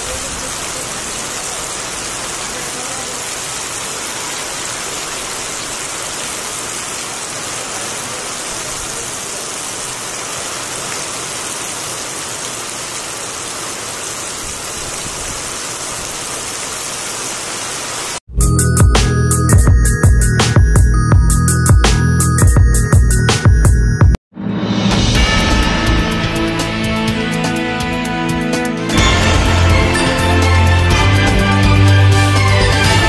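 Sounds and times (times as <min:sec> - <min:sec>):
heavy rain on wet ground: 0:00.0 - 0:18.2, 0:28.8 - 0:33.0.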